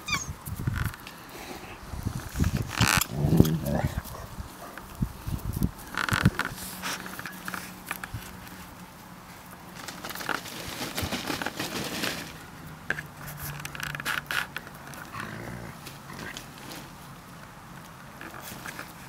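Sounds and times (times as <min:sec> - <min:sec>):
dogs scuffling on grass: 0:00.1 - 0:13.6
puppy play growls and grunts: 0:01.4 - 0:04.9, 0:15.0 - 0:16.7
low dog growl: 0:02.8 - 0:04.8, 0:15.1 - 0:16.4.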